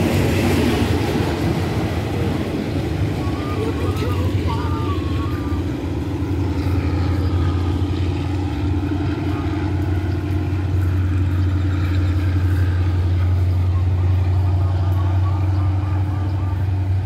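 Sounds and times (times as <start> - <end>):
engine droning: 0.0 - 17.0.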